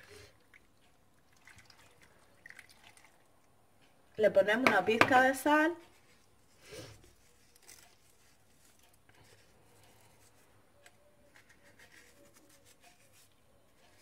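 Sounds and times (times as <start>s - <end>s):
salt sprinkling rustles and ticks: 7.0s - 10.4s.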